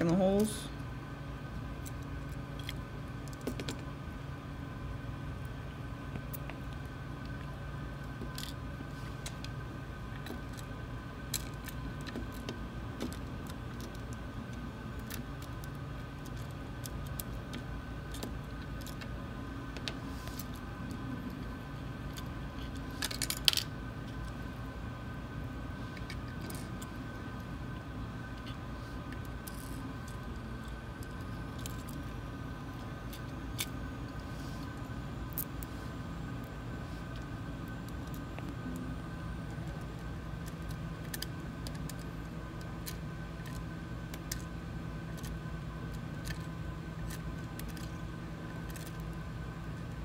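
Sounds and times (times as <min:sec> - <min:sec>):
steady machine hum: 0:00.0 - 0:50.0
light clicks of small plastic parts: 0:11.3 - 0:24.4, 0:28.3 - 0:35.7, 0:36.4 - 0:50.0.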